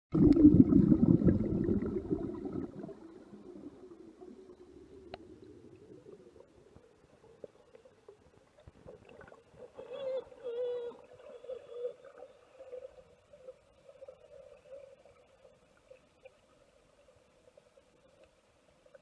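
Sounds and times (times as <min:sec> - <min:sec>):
underwater rumbling and gurgling: 0:00.1 - 0:10.2.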